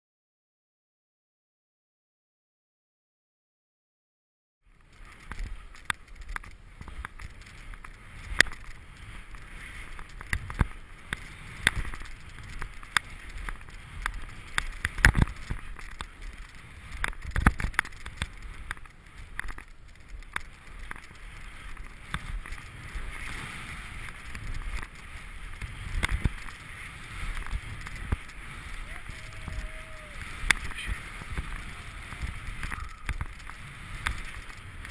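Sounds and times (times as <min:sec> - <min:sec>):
hiss of skis on snow: 0:22.7 - 0:34.4.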